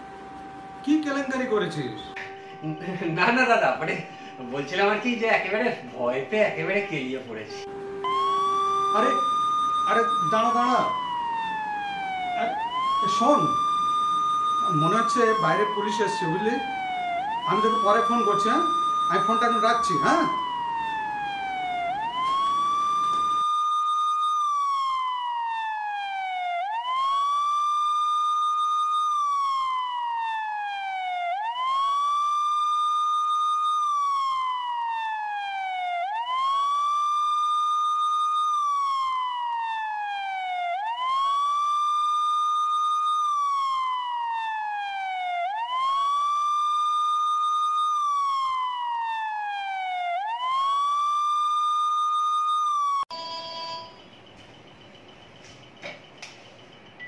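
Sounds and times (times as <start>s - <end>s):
police siren wailing: 0.0s - 53.2s.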